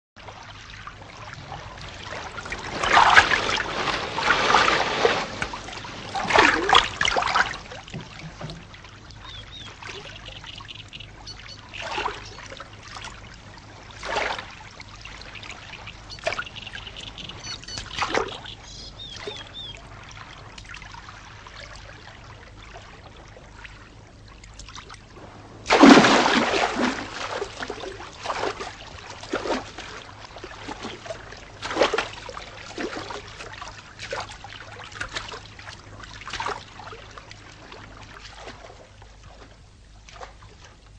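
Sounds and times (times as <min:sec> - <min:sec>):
paddle splashes: 0:00.2 - 0:40.9
big splash into water: 0:02.1 - 0:07.8, 0:25.2 - 0:29.8.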